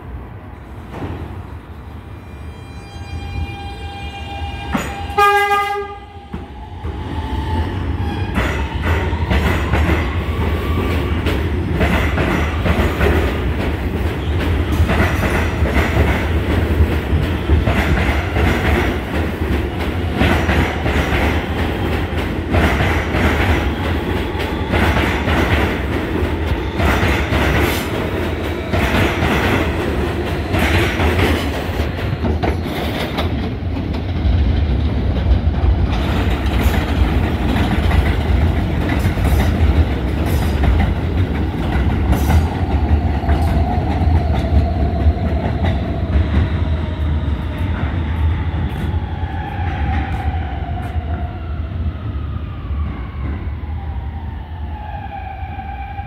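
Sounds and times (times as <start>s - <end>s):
subway train rumble: 0.0s - 56.0s.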